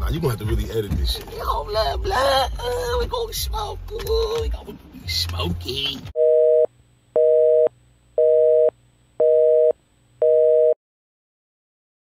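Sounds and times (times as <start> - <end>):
telephone busy signal beeps: 6.2 - 10.8.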